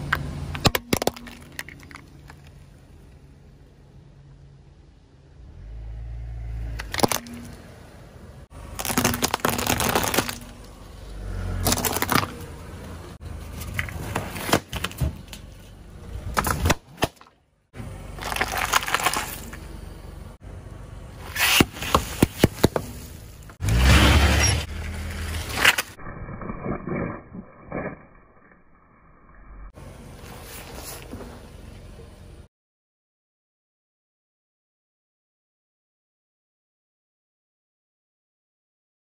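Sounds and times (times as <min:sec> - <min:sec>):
low tyre rumble: 0:00.0 - 0:32.5
tyre crushing plastic objects: 0:08.7 - 0:10.6, 0:11.6 - 0:12.4, 0:13.5 - 0:15.6, 0:16.3 - 0:17.4, 0:18.2 - 0:19.6.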